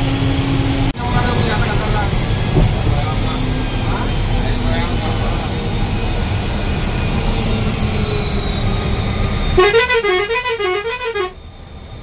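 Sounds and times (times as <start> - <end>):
bus engine and road rumble: 0.0 - 12.0
warbling musical vehicle horn: 9.6 - 11.4.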